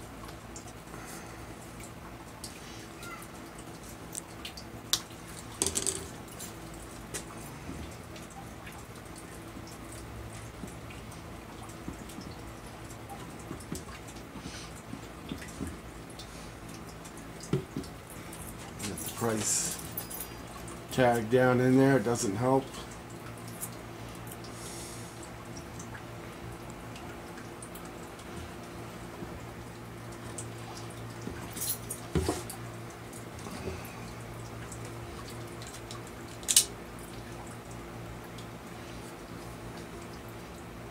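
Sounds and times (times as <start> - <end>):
steady low hum: 0.0 - 40.9
plastic parts clicking and knocking: 5.6 - 6.1.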